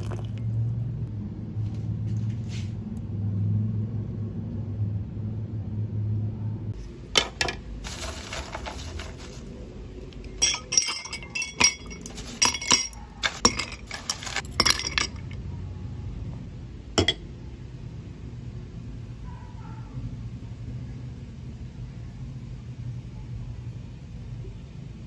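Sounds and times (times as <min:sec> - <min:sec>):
ice clinking against glass mug: 0:10.2 - 0:15.4.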